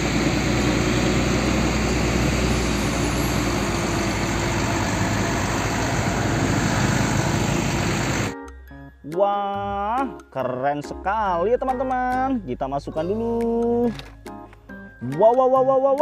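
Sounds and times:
diesel truck engine rumble: 0:00.0 - 0:08.4
road and traffic noise: 0:00.0 - 0:08.4.

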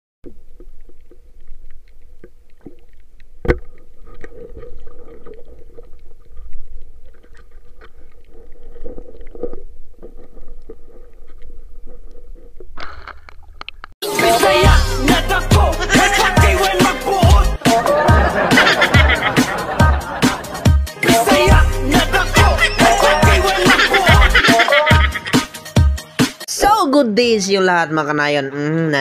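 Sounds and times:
water splashing: 0:00.2 - 0:13.9.

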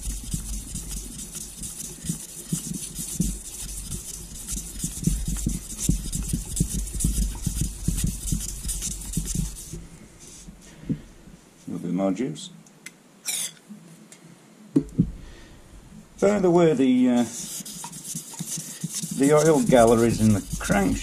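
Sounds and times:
abrasive strip scrubbing metal: 0:17.6 - 0:21.0.

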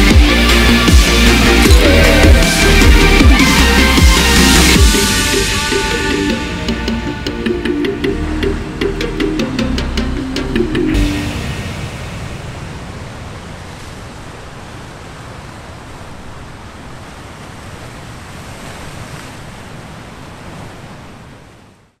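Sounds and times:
waves breaking on rocky shore: 0:11.0 - 0:22.0.

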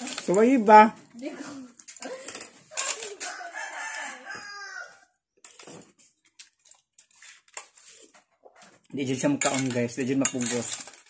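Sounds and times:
rooster crowing: 0:03.2 - 0:05.2.

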